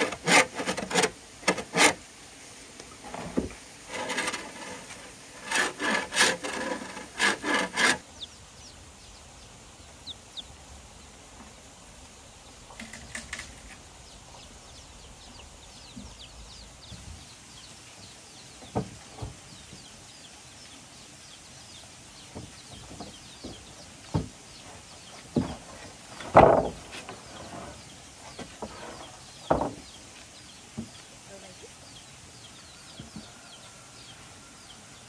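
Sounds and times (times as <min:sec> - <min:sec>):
small birds chirping: 0:02.8 - 0:35.0
wooden knocks and thuds on concrete: 0:18.6 - 0:19.9, 0:22.3 - 0:24.4, 0:25.3 - 0:27.2, 0:28.4 - 0:29.9.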